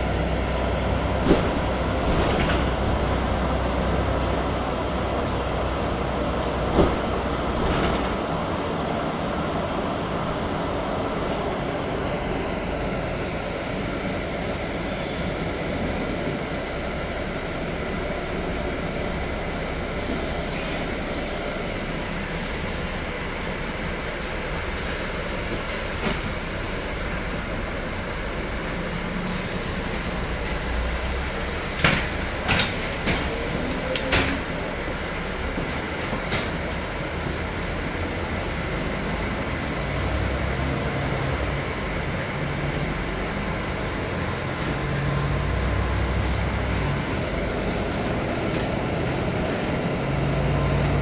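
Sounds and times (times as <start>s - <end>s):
bus ride noise: 0.0s - 51.0s
high hiss: 20.0s - 23.0s, 24.7s - 27.2s.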